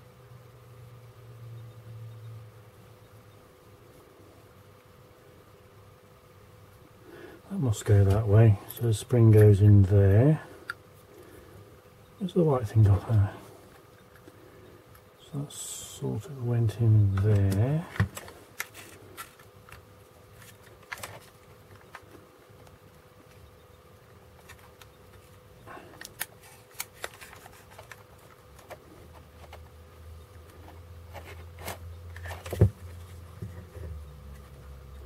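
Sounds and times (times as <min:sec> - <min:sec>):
plastic parts clicking and tapping: 0:20.4 - 0:23.4.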